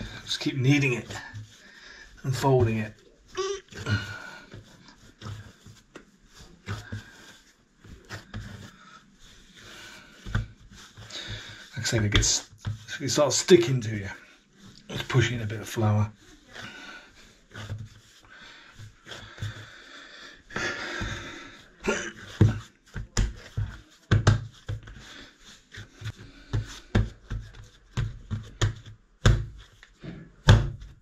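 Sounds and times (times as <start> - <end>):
dough rubbing: 0.0 - 31.0
dough thumping on wooden worktop: 22.4 - 25.0, 26.5 - 29.6, 30.4 - 31.0.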